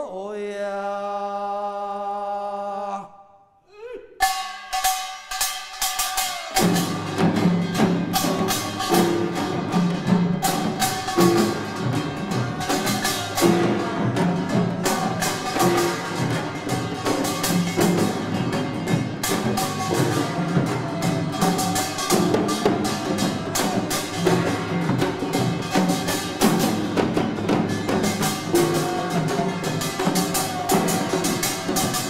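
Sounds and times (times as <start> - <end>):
drums beaten in fast rhythm: 4.2 - 32.0.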